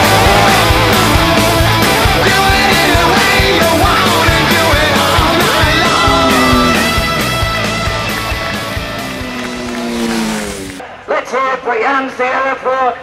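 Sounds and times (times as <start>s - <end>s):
music with fast steady beat: 0.0s - 9.3s.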